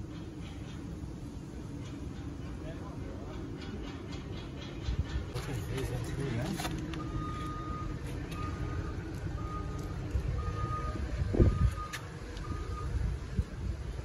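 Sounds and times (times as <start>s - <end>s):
low engine rumble: 0.0s - 14.0s
reversing alarm beeping: 7.0s - 13.1s.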